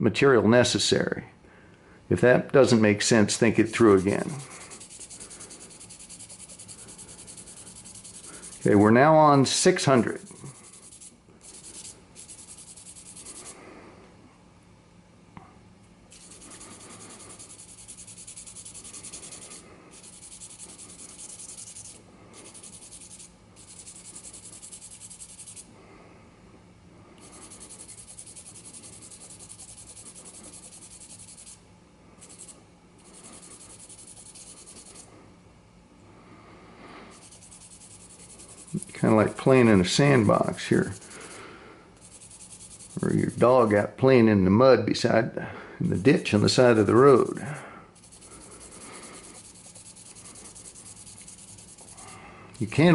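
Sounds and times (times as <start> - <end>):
sandpaper rasping: 3.2 - 13.5, 16.1 - 25.7, 27.2 - 31.6, 32.2 - 35.1, 37.1 - 41.4, 42.0 - 43.7, 46.7 - 52.9.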